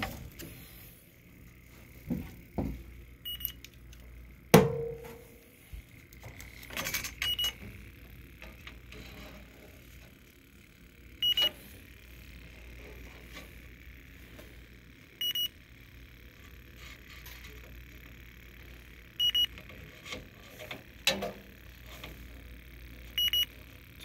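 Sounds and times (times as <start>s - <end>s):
leak detector double beep: 3.2s - 3.6s, 7.2s - 7.6s, 11.2s - 11.6s, 15.2s - 15.6s, 19.2s - 19.6s, 23.2s - 23.5s
sharp knock: 4.6s - 5.2s.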